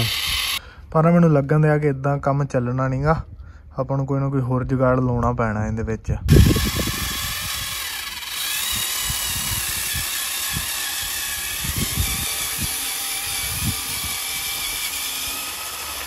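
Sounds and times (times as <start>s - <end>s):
small electric motor whining: 0.0s - 0.6s, 6.3s - 16.0s.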